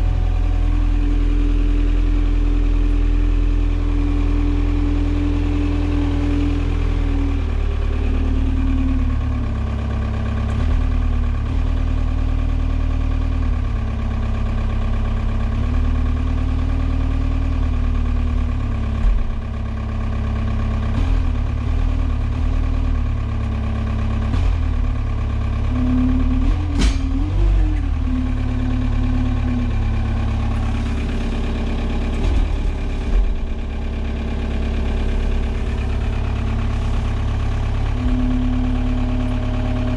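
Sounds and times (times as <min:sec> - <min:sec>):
forklift engine drone: 0:00.0 - 0:39.9
mid-pitched hum shifting pitch: 0:00.0 - 0:39.9
sharp knock: 0:26.6 - 0:27.4.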